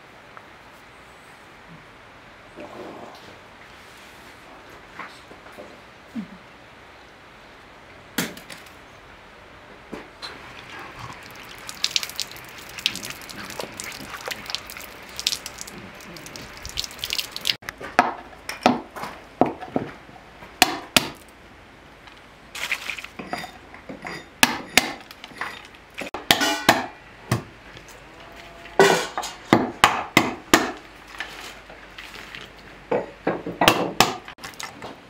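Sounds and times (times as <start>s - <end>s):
water trickling from jug: 10.3s - 17.6s
water drips and splashes: 10.4s - 17.6s, 22.6s - 23.2s, 34.4s - 34.8s.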